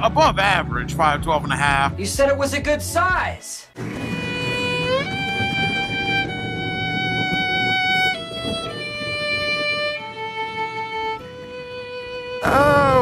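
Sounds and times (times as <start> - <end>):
low rumble: 0.0 - 13.0
lead instrument long notes: 3.8 - 13.0.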